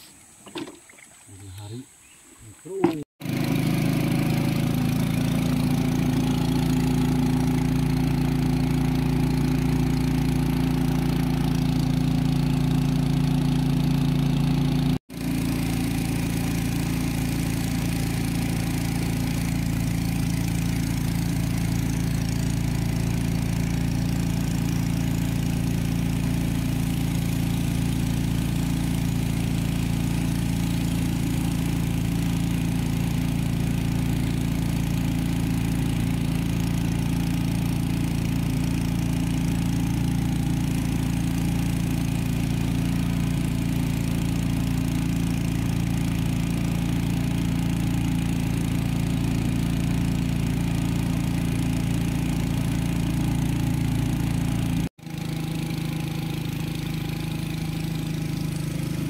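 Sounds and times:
motorboat engine running: 0:02.7 - 0:59.0
water rushing along hull: 0:15.2 - 0:54.6.

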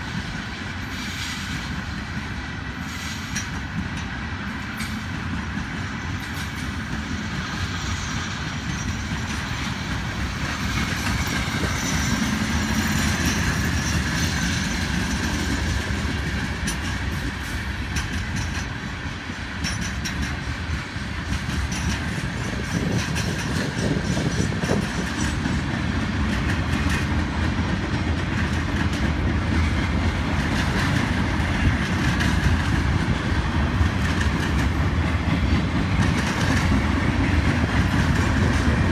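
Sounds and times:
steel wheels rumbling on rail: 0:00.0 - 0:38.9
wheels clicking over rail joints: 0:08.4 - 0:38.9.

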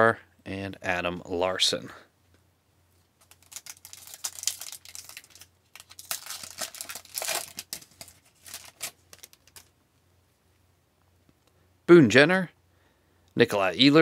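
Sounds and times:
wrapper tearing and crinkling: 0:03.2 - 0:09.7.

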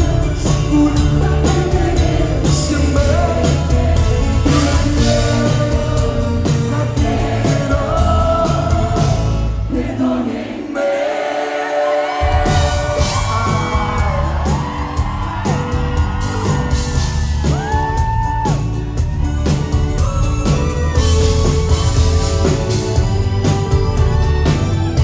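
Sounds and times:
live band playing: 0:00.0 - 0:09.8, 0:12.1 - 0:25.0
crowd whooping and yelling: 0:11.2 - 0:25.0.

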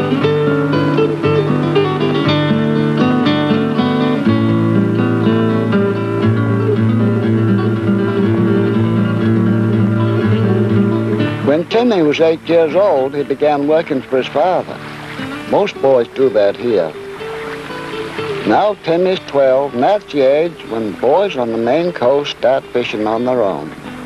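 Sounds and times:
acoustic guitar music: 0:00.0 - 0:24.0.

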